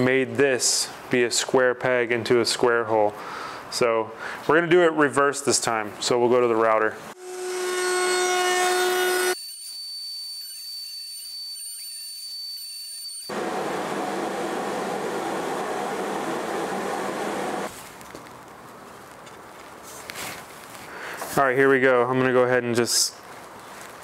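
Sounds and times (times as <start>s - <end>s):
router motor humming: 7.2s - 9.4s, 13.3s - 17.7s
router bit cutting wood: 7.2s - 12.3s.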